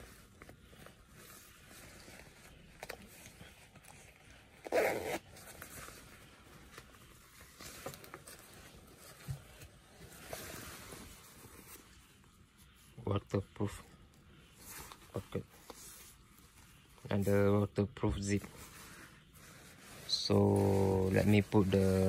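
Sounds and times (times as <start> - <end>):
fabric rustling: 0.0 - 13.0, 13.6 - 22.0
jacket zip: 4.6 - 5.4.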